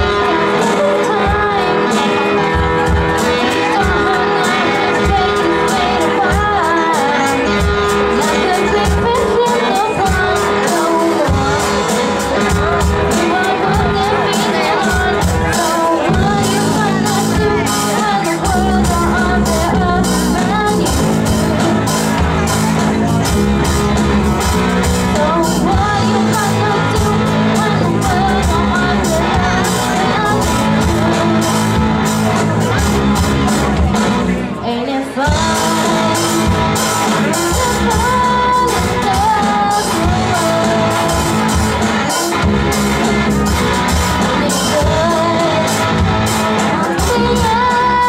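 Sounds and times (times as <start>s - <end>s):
bass guitar: 0.0s - 48.0s
drum kit: 0.0s - 48.0s
electric guitar: 0.0s - 48.0s
lead singer singing: 0.0s - 48.0s
rock band playing: 0.0s - 48.0s.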